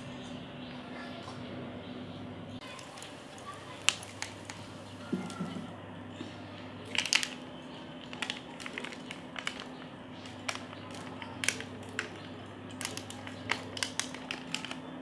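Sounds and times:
charcoal crackling and popping: 0:02.6 - 0:05.6, 0:06.8 - 0:15.0.

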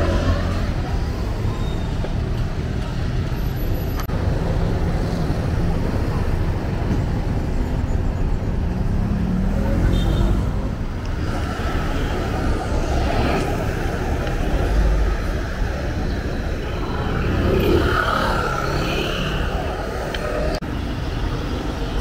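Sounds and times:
traffic rumble: 0:00.0 - 0:22.0
voices of passers-by: 0:00.0 - 0:22.0.

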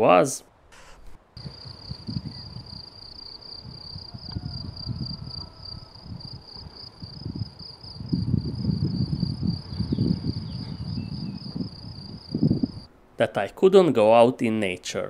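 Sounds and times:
crickets chirring: 0:00.8 - 0:12.9
wind rumble on microphone: 0:01.0 - 0:12.9.

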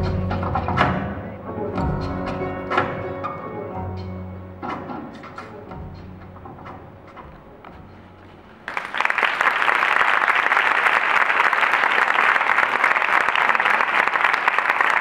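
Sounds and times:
music: 0:00.0 - 0:08.7
audience applause: 0:08.6 - 0:15.0.

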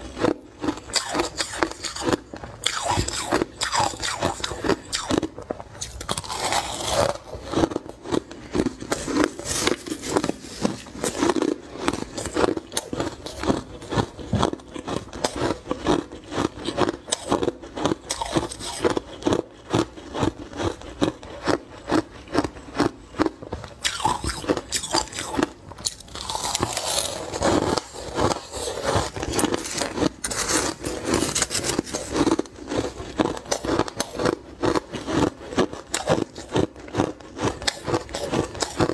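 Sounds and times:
chewing crushed ice: 0:00.0 - 0:38.9.

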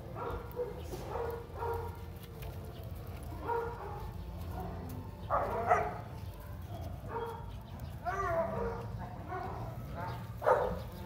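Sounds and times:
dogs yipping and whining: 0:05.3 - 0:11.0.

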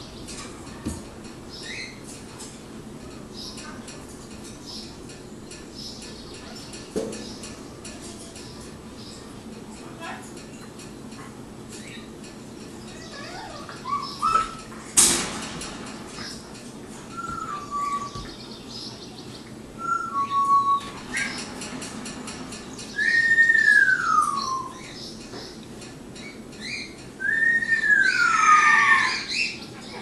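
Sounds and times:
animal whining and chirping: 0:12.8 - 0:14.8, 0:17.1 - 0:18.4, 0:19.8 - 0:21.5, 0:22.9 - 0:25.1, 0:26.6 - 0:30.0
sharp clack: 0:15.0 - 0:16.7.

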